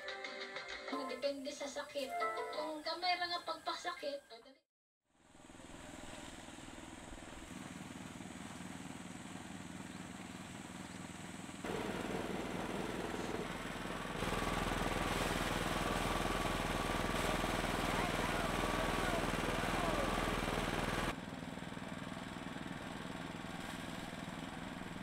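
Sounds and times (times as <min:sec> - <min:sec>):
rice thresher engine hum: 0:05.2 - 0:25.0.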